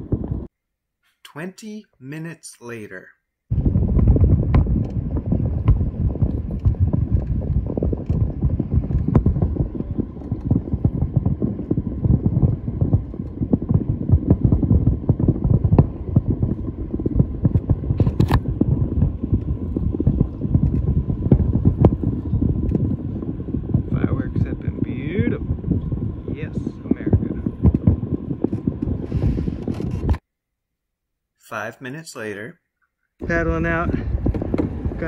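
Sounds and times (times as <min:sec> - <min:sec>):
wind buffeting microphone: 0:00.0 - 0:00.5, 0:03.5 - 0:30.2, 0:33.2 - 0:35.0.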